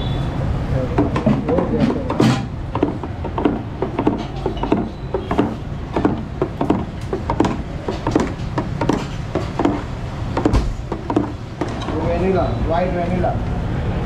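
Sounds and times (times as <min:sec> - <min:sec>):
metal rod knocking on tray: 0:01.0 - 0:12.0.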